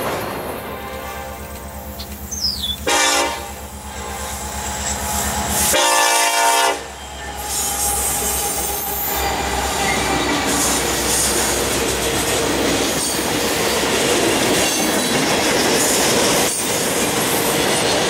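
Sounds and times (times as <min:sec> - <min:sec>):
locomotive engine rumbling: 0:00.0 - 0:18.0
train wheels rumbling on rails: 0:00.0 - 0:18.0
locomotive air horn blasts: 0:00.6 - 0:02.0, 0:02.8 - 0:09.8.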